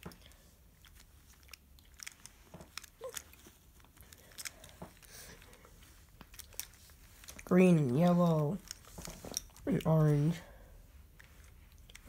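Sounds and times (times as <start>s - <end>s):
plastic puzzle pieces clicking: 0.0s - 5.6s.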